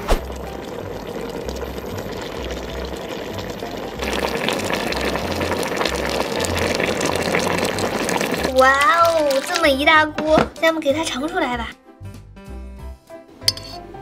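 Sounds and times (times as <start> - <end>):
background music with bass pulse: 0.0 - 8.0, 11.7 - 14.0
pot bubbling at a simmer: 0.0 - 9.9.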